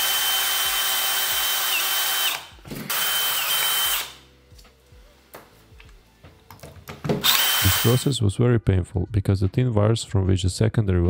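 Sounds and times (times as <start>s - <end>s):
cordless drill whine and grinding: 0.0s - 4.2s, 7.2s - 8.1s.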